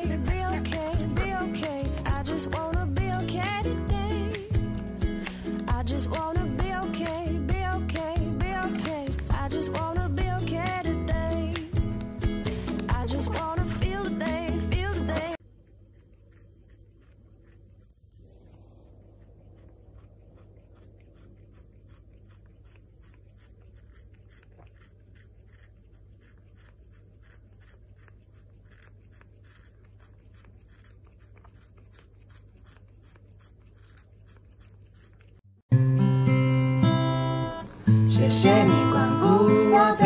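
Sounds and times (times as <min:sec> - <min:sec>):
cat licking wetly: 0:11.4 - 0:35.4.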